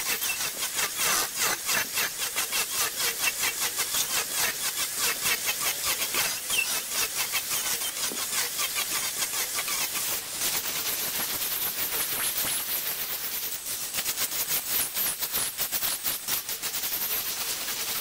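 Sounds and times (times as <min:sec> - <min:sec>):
cutting tool scraping wood on lathe: 0:00.0 - 0:13.6.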